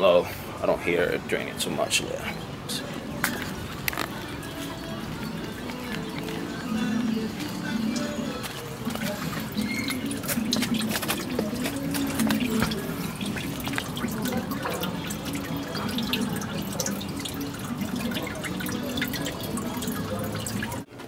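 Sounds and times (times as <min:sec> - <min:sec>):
fuel dripping into plastic pan: 0:03.2 - 0:20.9.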